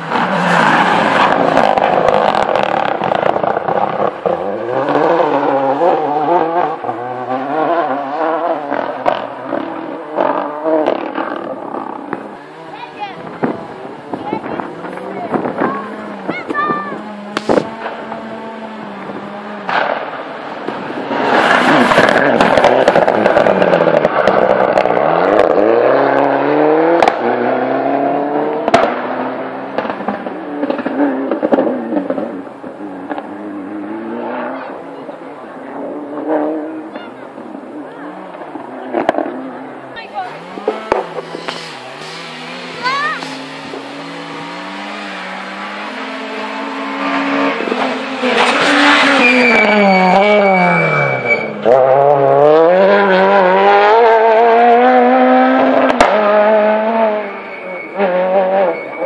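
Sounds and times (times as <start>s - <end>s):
rally car engine accelerating: 0.0s - 59.0s
exhaust pops: 19.0s - 25.0s, 29.7s - 33.3s, 40.6s - 43.9s
high-pitched tyre squeal: 20.9s - 25.8s, 40.0s - 54.0s, 55.8s - 59.0s.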